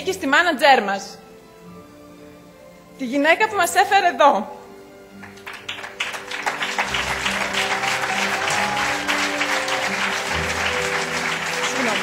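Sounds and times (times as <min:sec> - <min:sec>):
background music: 0:00.0 - 0:12.0
audience applause: 0:05.2 - 0:12.0.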